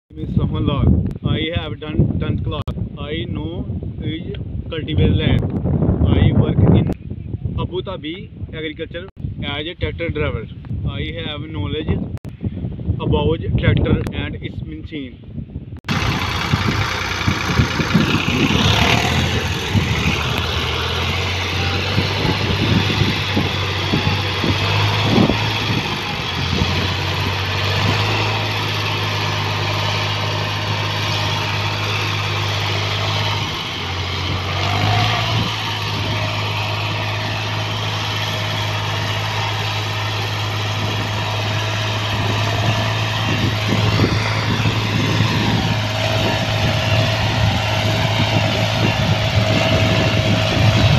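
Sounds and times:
tractor diesel engine running: 0:15.8 - 0:50.9.

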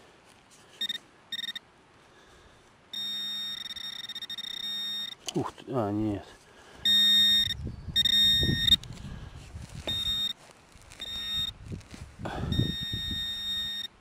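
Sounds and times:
pinpointer buzzing tone: 0:00.8 - 0:01.6, 0:02.9 - 0:05.3, 0:06.8 - 0:08.9, 0:09.8 - 0:11.6, 0:12.3 - 0:14.0
soil scraping and crunching: 0:08.7 - 0:12.5.

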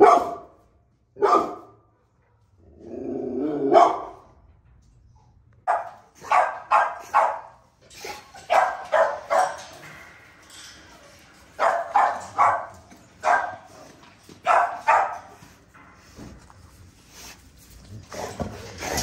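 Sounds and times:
dogs barking: 0:00.0 - 0:00.6, 0:01.2 - 0:02.5, 0:03.4 - 0:04.3, 0:05.6 - 0:10.0, 0:11.5 - 0:15.6.

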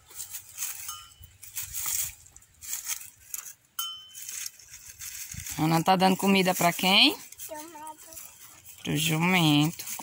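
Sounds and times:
donkey chewing grass: 0:00.0 - 0:10.0
dry stalks crunching and rustling: 0:00.0 - 0:10.0
metallic clinks: 0:00.7 - 0:01.6, 0:03.4 - 0:04.7.

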